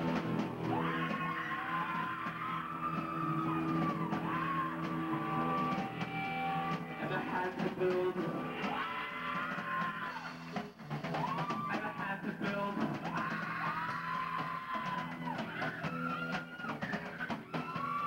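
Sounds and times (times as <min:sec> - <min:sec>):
drum kit beat: 0:00.0 - 0:18.0
guitar: 0:00.0 - 0:18.0
person singing: 0:00.6 - 0:10.3.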